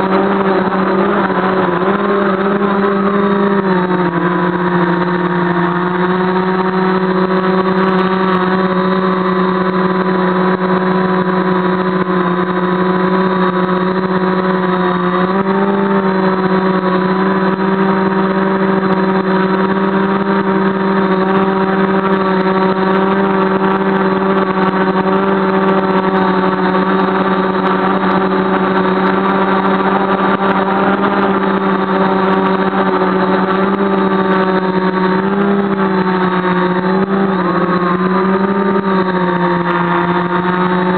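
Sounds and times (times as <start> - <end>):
drone motors and propellers droning: 0.0 - 40.9.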